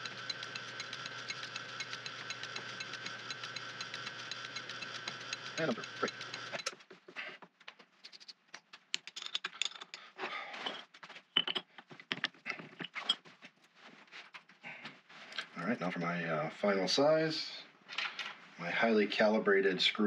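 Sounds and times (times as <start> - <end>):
light ticking: 0.0 - 6.7
metal lathe whirring: 0.0 - 6.7
metal tools clicking and clunking: 8.9 - 13.2.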